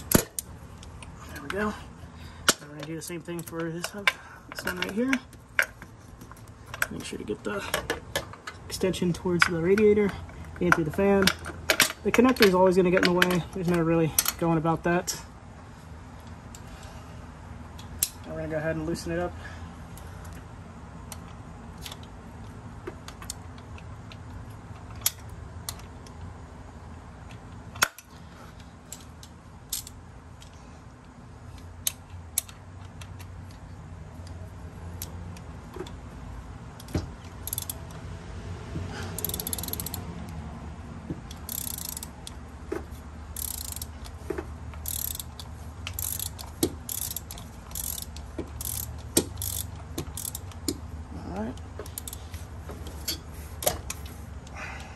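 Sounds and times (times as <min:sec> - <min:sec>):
steady low hum: 0:00.0 - 0:54.9
socket ratchet clicking: 0:28.9 - 0:30.5, 0:36.7 - 0:38.0, 0:39.1 - 0:40.4, 0:41.2 - 0:42.5, 0:43.3 - 0:50.9, 0:51.6 - 0:52.4.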